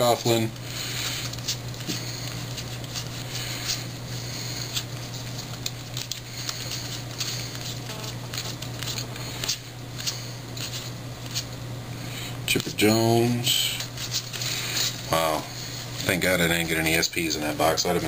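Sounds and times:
steady low hum: 0.0 - 18.0
cards flicking through hand: 4.5 - 11.6.

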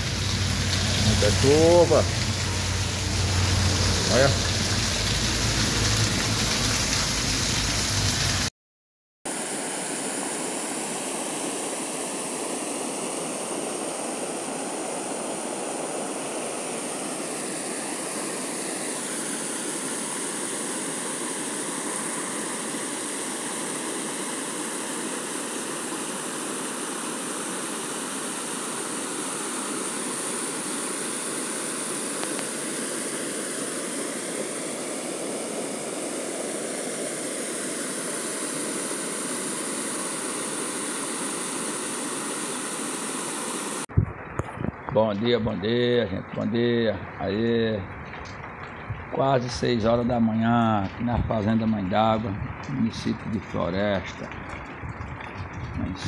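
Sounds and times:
water rushing over dam: 0.0 - 8.5, 9.3 - 43.9.

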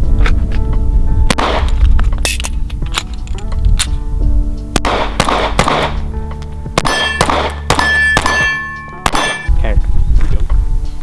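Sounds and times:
pistol shots: 1.3 - 2.4, 4.8 - 6.1, 6.8 - 9.5
steel targets ringing: 6.8 - 9.5.

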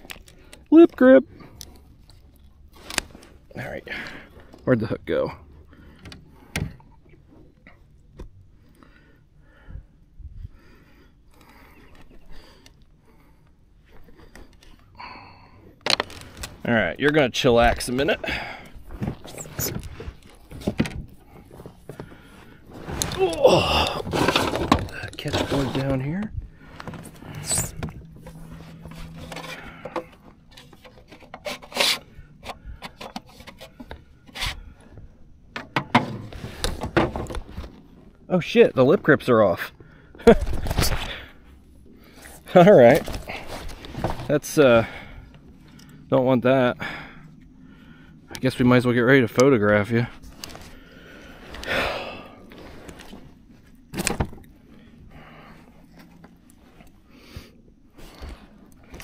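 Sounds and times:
low steady hum: 0.0 - 59.0
handling noise on plastic kayak: 15.8 - 38.2, 42.2 - 45.5, 50.2 - 59.0
scraping and knocks on plastic kayak: 24.0 - 26.0, 35.6 - 37.8.

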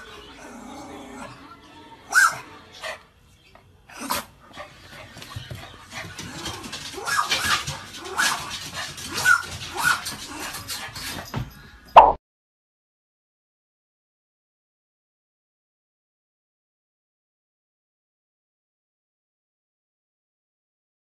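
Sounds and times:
small dog barking: 2.1 - 2.4, 9.1 - 10.1.

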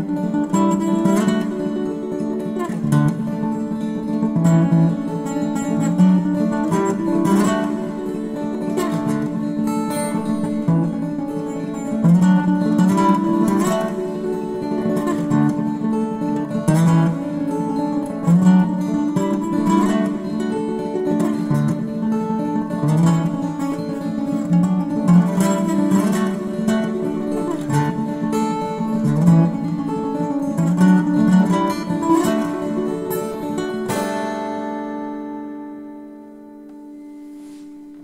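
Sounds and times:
strummed guitar: 0.0 - 38.0.

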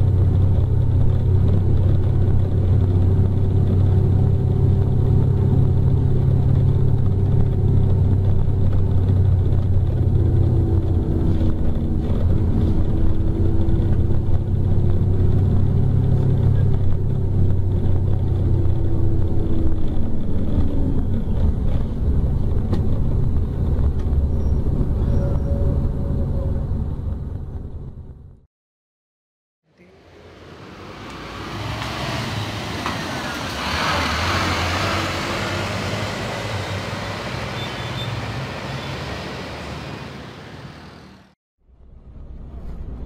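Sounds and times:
diesel engine drone inside coach: 0.0 - 28.5.

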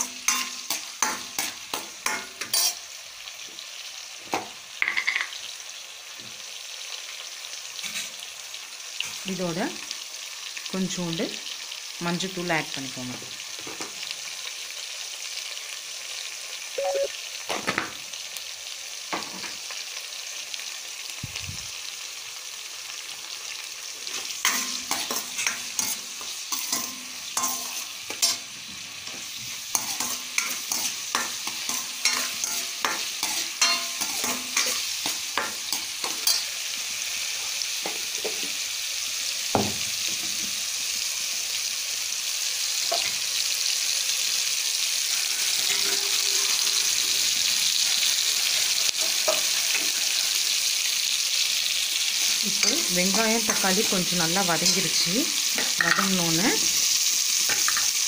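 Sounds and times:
onions sizzling in oil: 0.0 - 58.0
ladle scraping a pan: 45.1 - 47.5.

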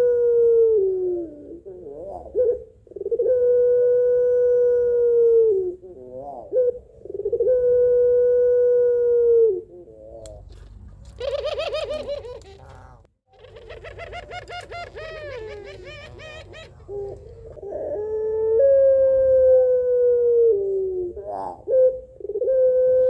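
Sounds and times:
dove cooing: 0.0 - 23.0.

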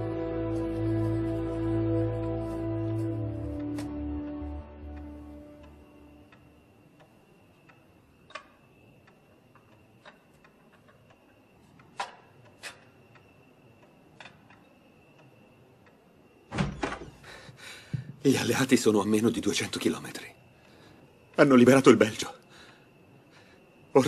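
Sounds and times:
clock ticking: 4.4 - 16.1.

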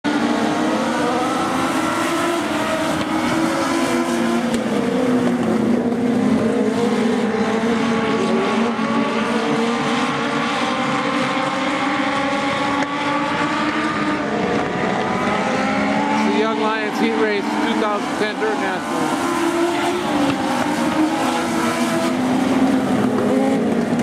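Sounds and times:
race car engines at high revs: 0.0 - 24.0.

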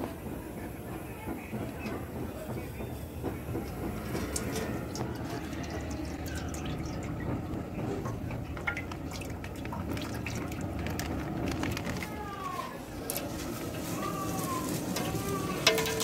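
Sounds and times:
oil pouring into metal pot: 4.2 - 12.0.

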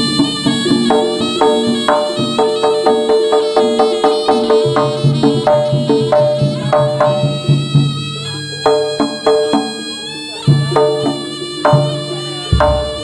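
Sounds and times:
hand drum strokes: 0.0 - 13.0
struck metallophone notes: 0.0 - 13.0
reed pipe long note: 12.1 - 13.0.

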